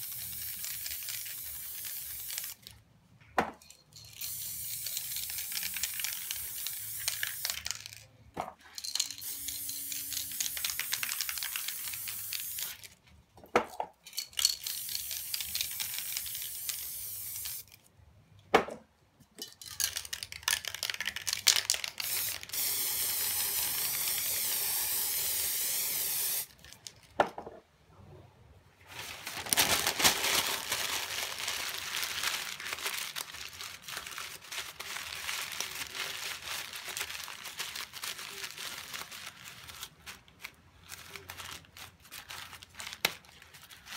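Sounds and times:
spray paint cans hissing: 0.0 - 2.7, 4.1 - 8.0, 8.8 - 12.8, 14.4 - 17.8, 20.6 - 26.5.

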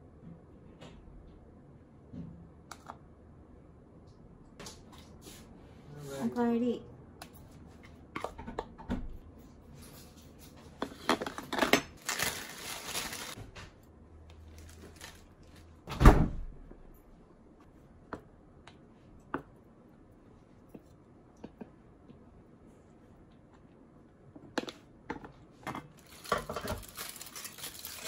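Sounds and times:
toppings rustling into metal pan: 11.9 - 13.4, 14.4 - 15.7, 25.9 - 28.0.

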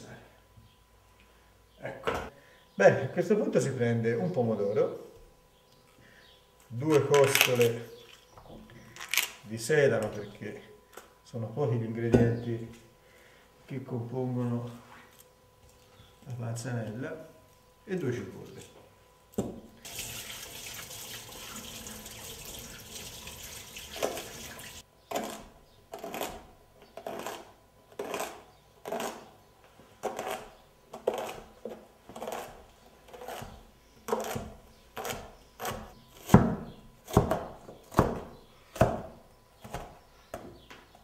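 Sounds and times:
knife chopping on cutting board: 33.2 - 39.1.

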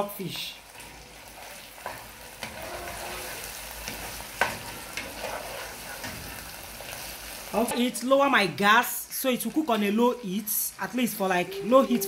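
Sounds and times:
sauce sizzling in a pan: 0.0 - 12.0
spoon scraping and knocking pan: 1.8 - 6.5.

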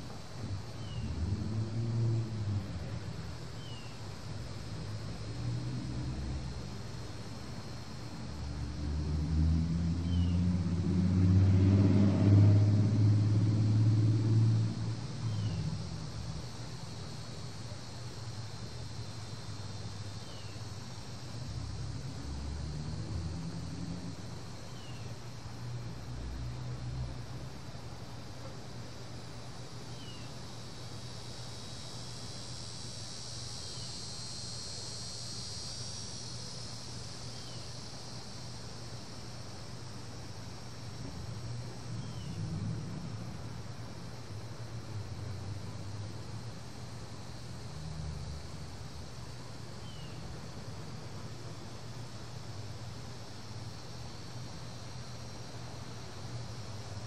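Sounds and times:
cicadas droning: 0.0 - 57.0
hummingbird wings humming: 0.0 - 57.0.

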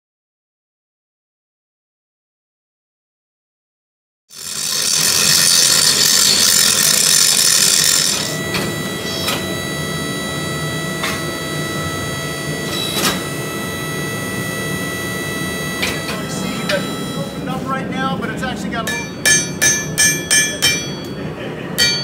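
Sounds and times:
angle grinder grinding metal: 4.3 - 17.6
hum of shop machinery: 4.3 - 22.0
sharp metal clanks: 18.9 - 21.2, 21.8 - 22.0.

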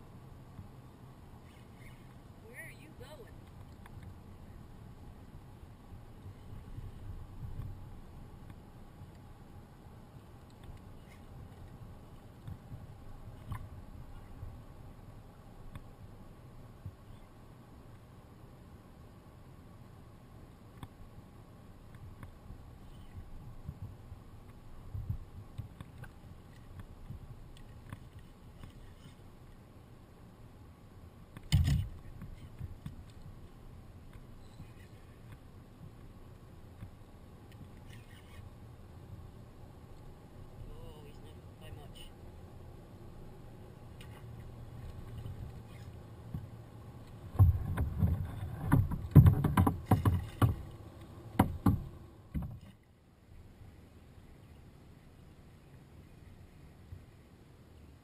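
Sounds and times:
faint knocks of kayak hull: 47.3 - 50.8, 51.4 - 52.8.

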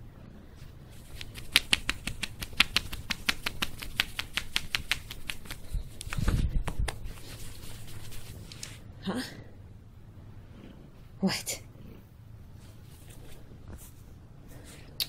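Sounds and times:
hand rubbing cat fur: 0.9 - 8.8, 12.5 - 14.9.

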